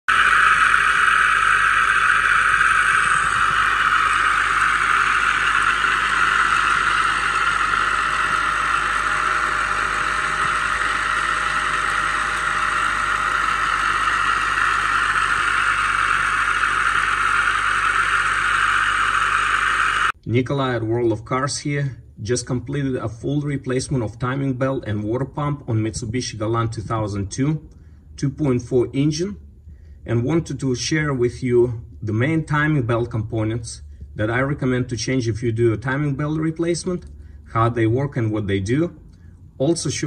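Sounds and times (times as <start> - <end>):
car engine running: 0.0 - 20.2.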